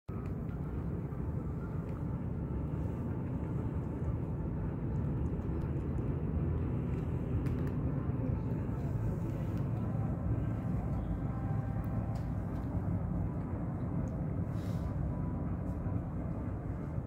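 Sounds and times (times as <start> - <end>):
low outdoor rumble: 0.1 - 17.0
cat crunching dry kibble: 5.6 - 8.0.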